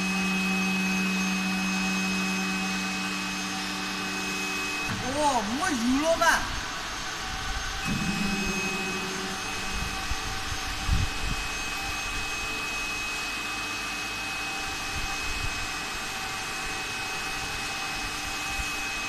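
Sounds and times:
hydraulic motor and pump running: 0:00.0 - 0:19.0
thin high whine: 0:07.8 - 0:13.4.

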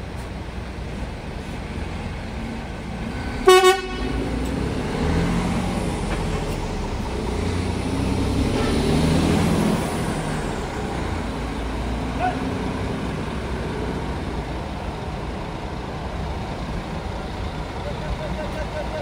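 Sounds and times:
bus engine running: 0:00.0 - 0:19.0
vehicle horn double toot: 0:03.4 - 0:04.2.

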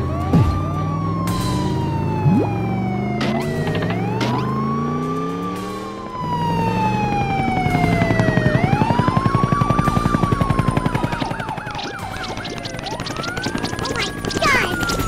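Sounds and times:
cartoon ambulance siren wailing: 0:00.0 - 0:15.0
background music with fast beat: 0:11.4 - 0:15.0.

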